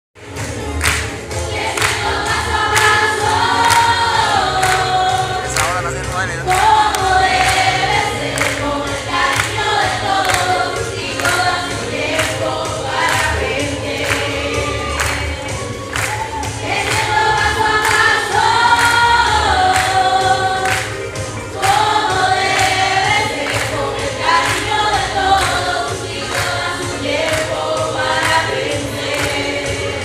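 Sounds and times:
music with beat and bass: 0.2 - 30.0
group of young voices singing: 1.2 - 30.0.

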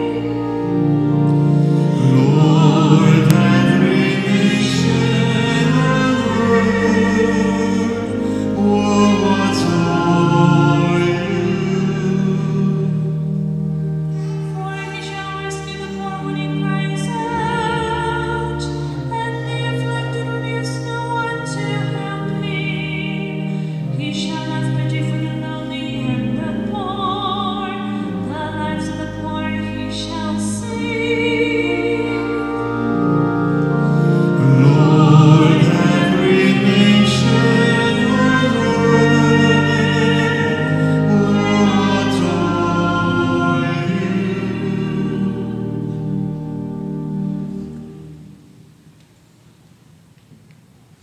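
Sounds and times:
choir voices singing: 0.0 - 48.2
held organ chords: 0.0 - 49.4
person singing sacred chant: 1.8 - 13.3, 34.3 - 46.2.

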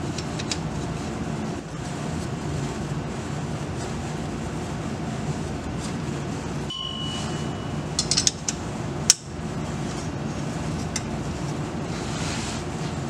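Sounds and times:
steady low hum: 0.0 - 13.0
ringing ping: 6.7 - 7.9.

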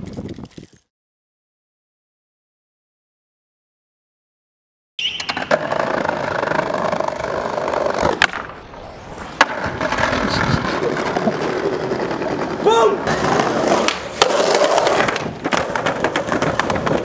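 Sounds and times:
skateboard landing clack: 5.0 - 10.2, 13.1 - 17.0
skateboard sharp crack: 5.0 - 17.0
skateboard wheels rolling on concrete: 5.0 - 17.0.

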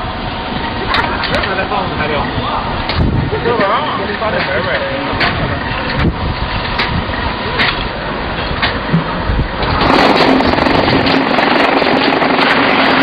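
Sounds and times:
vibration motor humming: 4.8 - 13.0.

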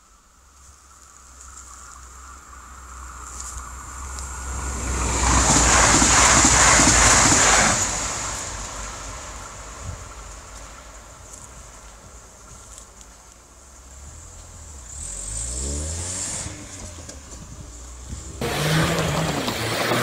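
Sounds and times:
train rumble and wheel noise: 2.0 - 13.4, 16.4 - 20.0.

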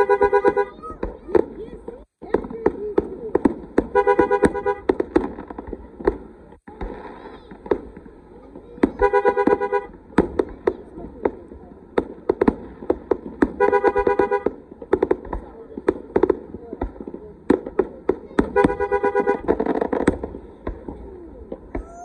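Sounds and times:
car horn honks: 0.0 - 0.8, 3.9 - 4.9, 9.0 - 10.0, 13.6 - 14.6, 18.5 - 19.5
fireworks bangs and crackles: 0.0 - 22.0.

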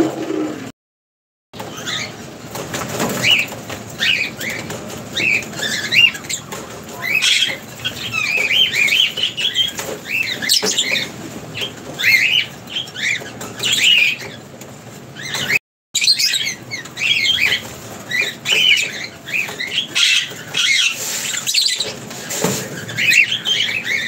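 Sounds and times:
wings fluttering: 1.6 - 24.0
lovebirds chirping: 3.0 - 14.5, 15.1 - 24.0.

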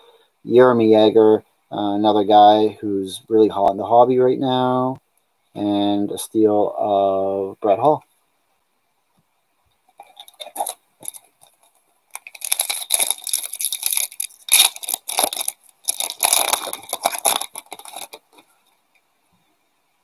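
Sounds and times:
foil wrapper crinkling: 10.0 - 18.7.

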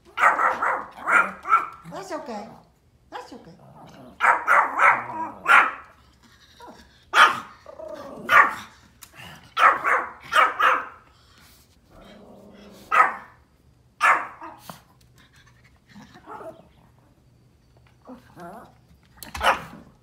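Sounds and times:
small dog yapping: 0.1 - 1.9, 4.2 - 5.9, 19.3 - 19.8.

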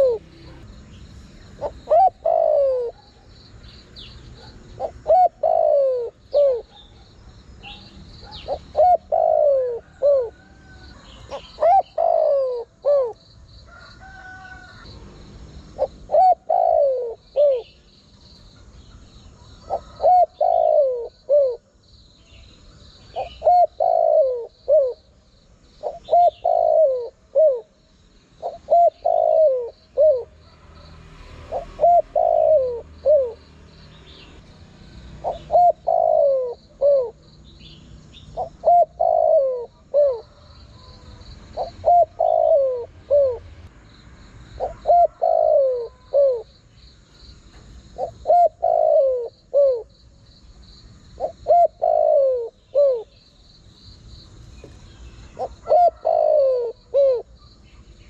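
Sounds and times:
dove cooing: 0.0 - 0.8, 1.4 - 14.9, 15.7 - 17.8, 18.9 - 21.7, 23.0 - 25.1, 25.8 - 30.8, 31.4 - 33.5, 35.0 - 37.3, 38.3 - 43.6, 44.6 - 46.5, 47.6 - 50.0, 51.2 - 53.2, 55.3 - 57.4
faint high bird chirps: 0.0 - 15.0.

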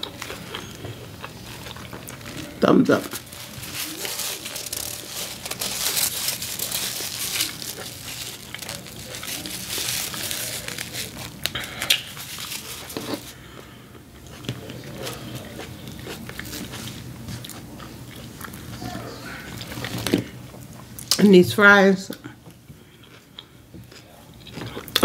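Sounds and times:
paper napkin crinkling: 0.0 - 13.5.

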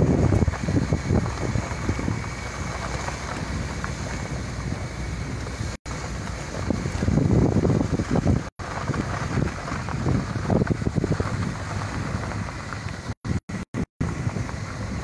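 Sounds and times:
moving vehicle rumble: 0.0 - 15.0
wind buffeting microphone: 0.0 - 15.0.

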